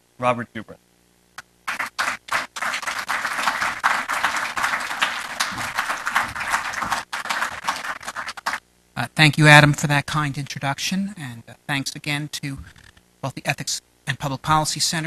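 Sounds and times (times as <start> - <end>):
audience applauding: 1.7 - 8.6.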